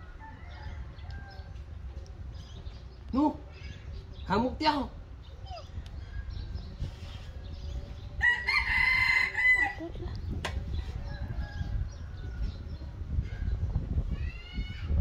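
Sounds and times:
rooster crowing: 8.2 - 9.8.

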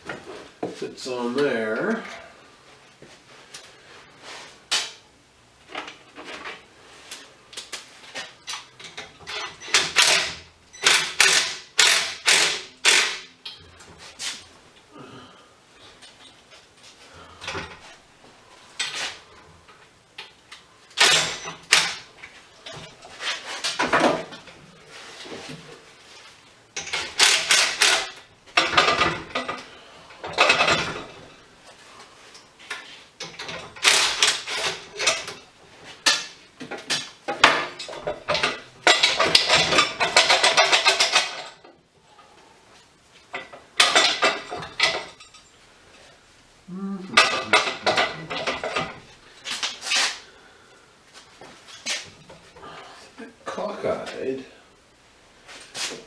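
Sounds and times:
metal tools clinking and rattling: 30.2 - 31.2, 36.0 - 41.7, 43.3 - 45.5, 47.2 - 49.1.

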